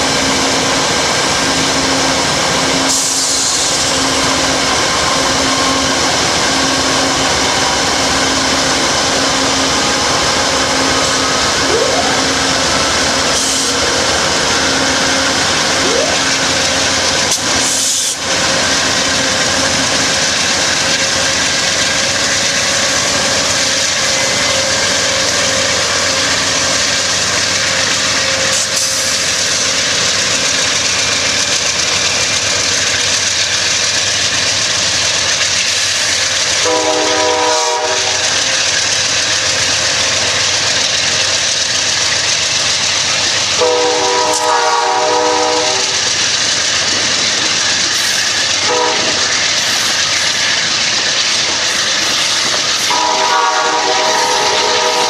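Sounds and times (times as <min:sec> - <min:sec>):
diesel locomotives passing: 0:00.0 - 0:55.0
passenger cars rolling on steel wheels: 0:00.0 - 0:55.0
train horn blasts: 0:36.6 - 0:38.4, 0:43.6 - 0:46.0, 0:48.6 - 0:49.3, 0:52.8 - 0:55.0.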